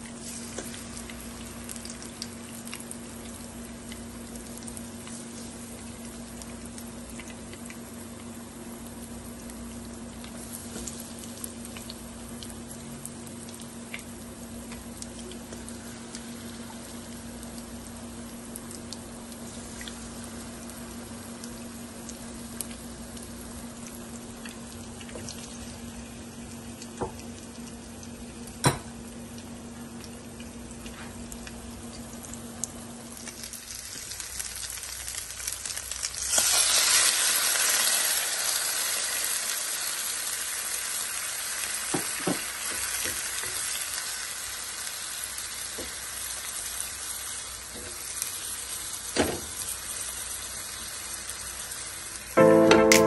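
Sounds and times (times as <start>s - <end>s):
low steady hum: 0.0s - 36.5s, 52.2s - 53.0s
food bubbling in a pan: 0.0s - 52.4s.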